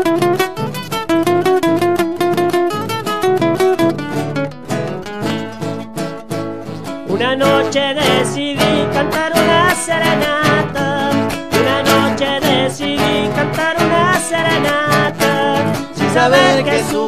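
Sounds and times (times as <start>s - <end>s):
acoustic guitars strumming: 0.0s - 17.0s
men singing: 7.1s - 17.0s.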